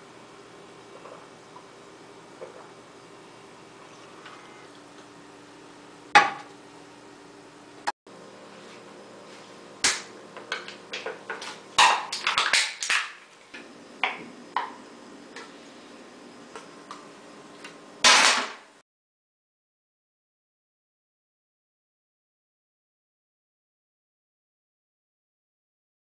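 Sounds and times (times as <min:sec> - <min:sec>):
soda can being crushed: 0:11.3 - 0:13.3.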